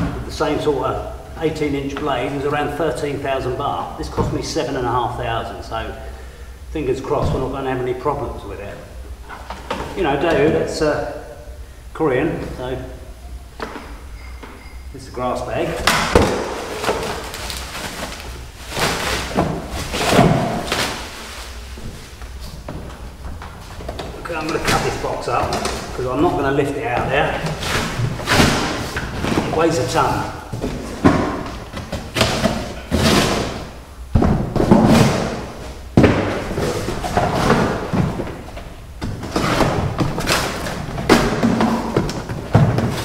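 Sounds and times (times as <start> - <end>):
cardboard thumps: 15.8 - 26.0, 26.9 - 29.6, 30.5 - 43.0
rustling and knocking of packaging: 15.8 - 43.0
cardboard scraping and tearing: 16.3 - 21.8.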